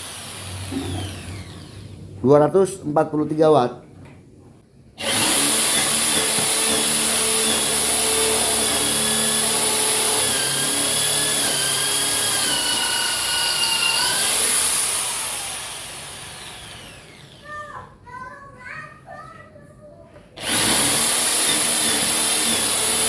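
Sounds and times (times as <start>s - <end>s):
drill boring into wood: 0.0s - 1.9s, 5.0s - 17.4s, 20.4s - 23.0s.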